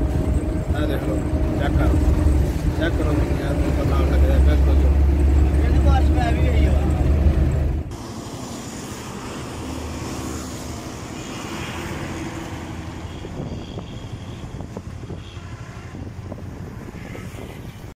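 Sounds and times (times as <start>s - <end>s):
bus engine pulling away: 0.0s - 13.1s
tyres and road traffic: 0.0s - 17.9s.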